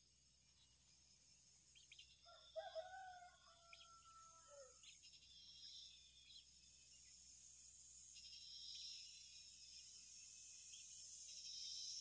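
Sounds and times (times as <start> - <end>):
faint rooster crowing: 2.2 - 4.9.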